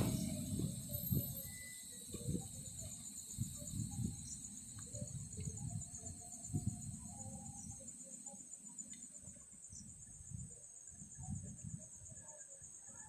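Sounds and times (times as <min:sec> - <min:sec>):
faint low rumbling: 0:00.0 - 0:01.5
night insects chirping: 0:00.0 - 0:13.0.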